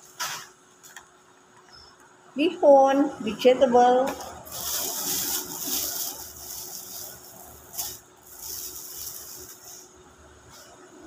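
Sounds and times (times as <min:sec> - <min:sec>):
plastic bag crinkling: 0:04.4 - 0:09.9.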